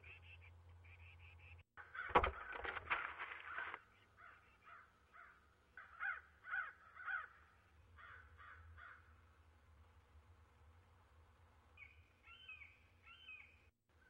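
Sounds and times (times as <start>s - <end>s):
crows cawing: 1.8s - 2.8s, 3.4s - 9.2s.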